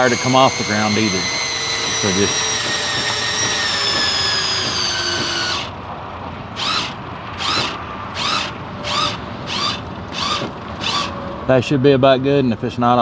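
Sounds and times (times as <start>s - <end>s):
drill motor running: 0.0s - 5.8s, 6.5s - 11.2s.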